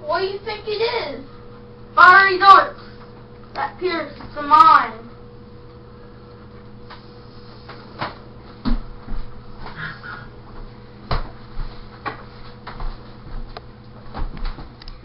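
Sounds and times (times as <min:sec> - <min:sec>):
steady low hum: 0:00.0 - 0:15.0
knocks thumps and footfalls: 0:08.0 - 0:09.8, 0:10.6 - 0:14.8.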